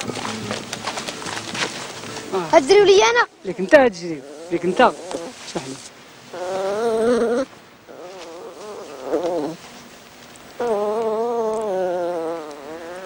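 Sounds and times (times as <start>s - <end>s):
puppy whining: 6.3s - 9.6s, 10.6s - 13.0s.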